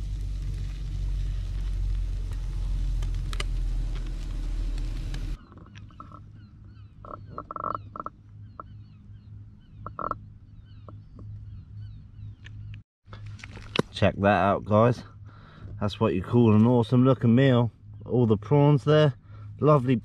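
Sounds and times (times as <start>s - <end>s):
grill sizzling loudly: 0.0s - 5.4s
low steady hum: 0.0s - 20.0s
birds chirping: 5.1s - 13.3s, 14.0s - 20.0s.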